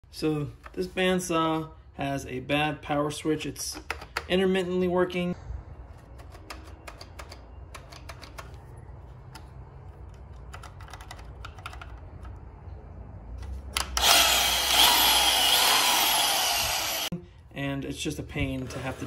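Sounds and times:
bandsaw motor running loudly: 0:13.9 - 0:17.1.

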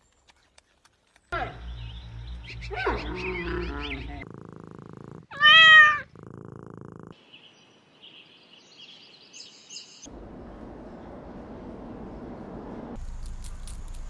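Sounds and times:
low purr-like rumble: 0:02.7 - 0:07.2
cat meowing: 0:05.3 - 0:06.1.

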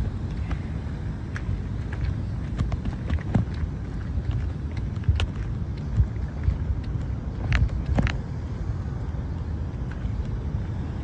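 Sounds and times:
wind rumbling on microphone: 0:00.0 - 0:11.0
light clicks and taps: 0:01.3 - 0:08.3.

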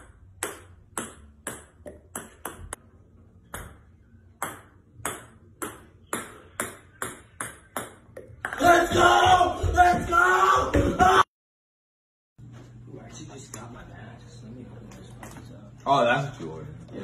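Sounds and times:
ping-pong ball bouncing on wood floor: 0:00.0 - 0:02.8, 0:03.4 - 0:08.7.

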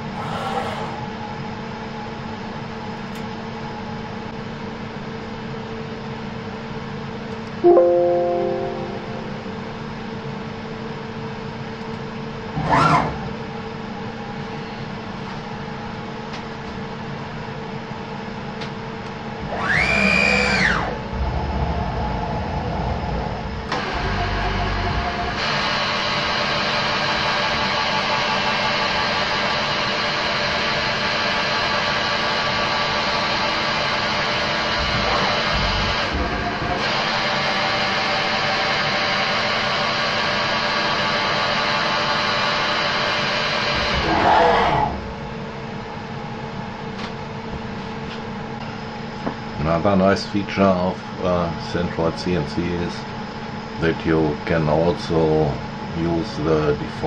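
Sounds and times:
mill axis drives humming: 0:09.5 - 0:39.8
milling machine spindle whirring: 0:19.4 - 0:27.8
motor whine: 0:19.4 - 0:27.8.

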